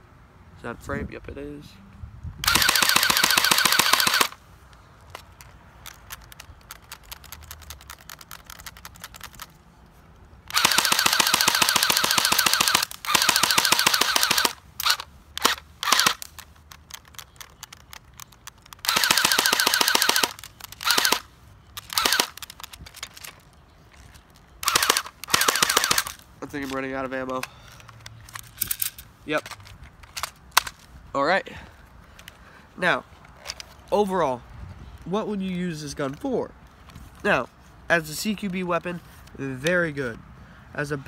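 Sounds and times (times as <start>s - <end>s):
airsoft gun firing full-auto bursts: 2.4s - 4.4s, 10.5s - 16.2s, 18.8s - 21.2s, 21.9s - 22.4s, 24.6s - 26.2s.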